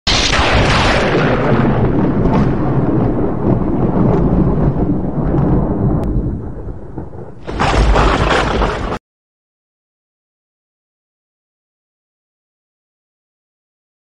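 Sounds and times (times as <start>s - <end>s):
thunder-like rumbling: 0.1s - 9.0s.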